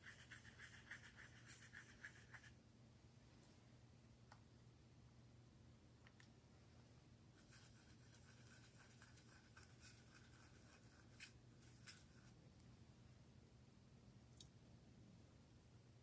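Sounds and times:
paintbrush scratching in paint pan: 0.0s - 2.6s, 7.4s - 12.4s.

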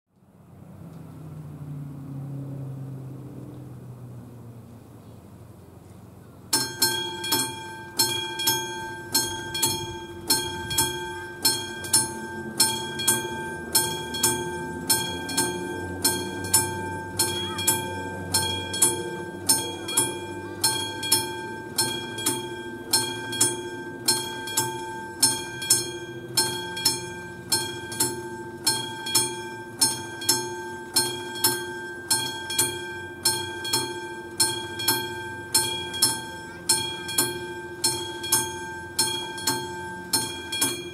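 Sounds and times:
level crossing warning bell: 6.5s - 40.9s.

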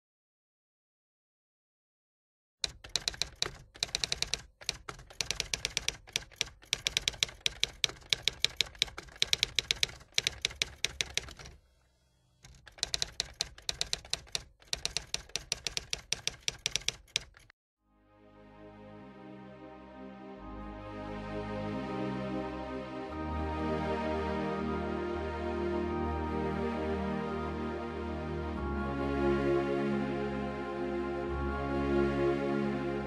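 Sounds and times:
typewriter keys striking: 2.6s - 11.6s, 12.4s - 17.5s.

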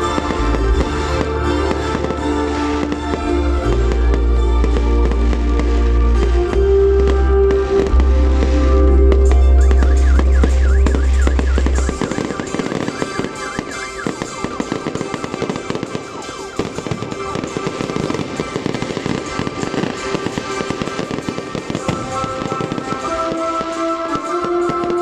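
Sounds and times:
fireworks crackling pops: 0.0s - 25.0s
music playing: 0.0s - 25.0s.

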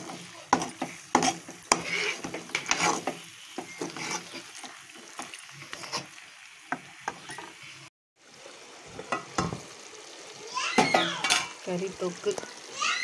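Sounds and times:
spatula scraping metal pot: 0.0s - 6.2s
chicken sizzling: 0.0s - 13.0s.

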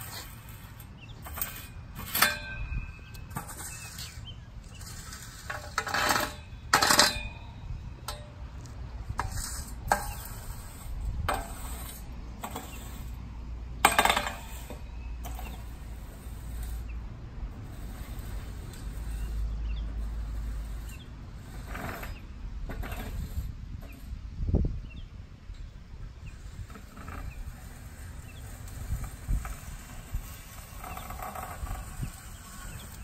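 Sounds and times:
rake scraping and clinking: 0.0s - 13.2s, 13.8s - 24.2s, 26.2s - 33.0s.

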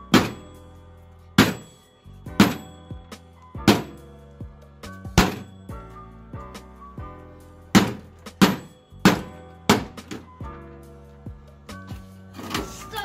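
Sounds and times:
hatchet chopping sheet metal: 0.0s - 0.6s, 1.4s - 2.8s, 3.6s - 4.1s, 5.2s - 5.5s, 7.7s - 10.3s
background music: 0.0s - 13.0s.

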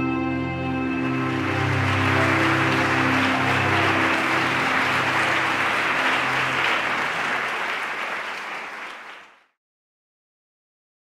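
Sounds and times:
low ambient music: 0.0s - 7.2s
audience applauding: 0.9s - 9.5s.

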